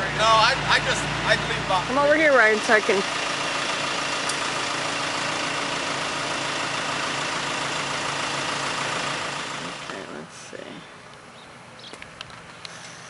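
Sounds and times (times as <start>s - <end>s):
diesel engine running: 0.0s - 11.1s.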